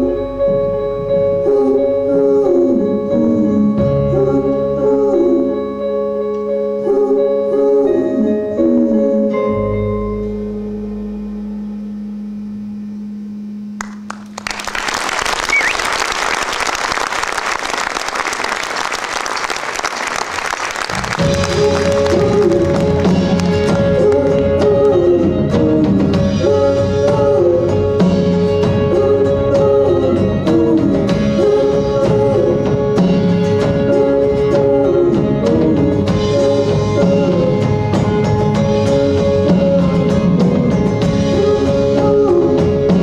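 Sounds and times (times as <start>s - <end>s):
audience applauding: 13.8s - 24.5s
live band playing: 13.8s - 43.0s.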